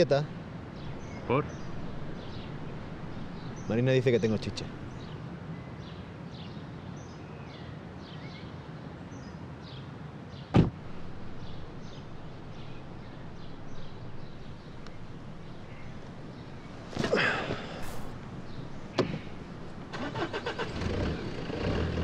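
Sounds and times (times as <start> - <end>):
small birds chirping: 0.0 - 22.0
car door slamming: 10.6 - 21.8.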